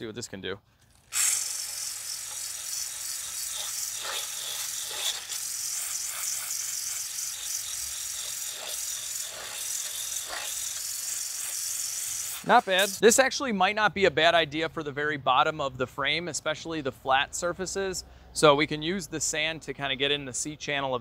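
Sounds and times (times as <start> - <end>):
abrasive disc grinding steel: 0.9 - 13.0
drill motor whirring: 0.9 - 13.0.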